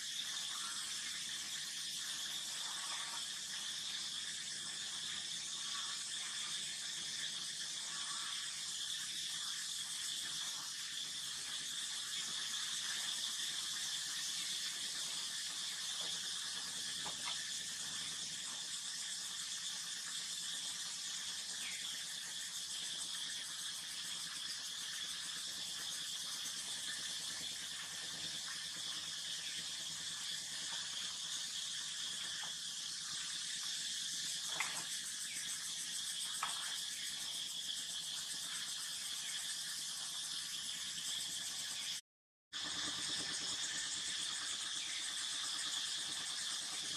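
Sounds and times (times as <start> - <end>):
high-pitched insect chorus: 0.0 - 42.0, 42.6 - 46.9.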